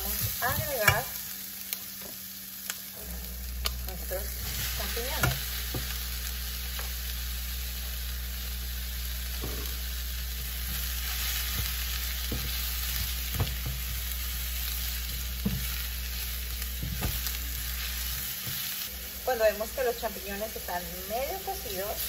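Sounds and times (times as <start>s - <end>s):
steady low hum: 0.0s - 22.0s
vegetables sizzling in oil: 0.0s - 22.0s.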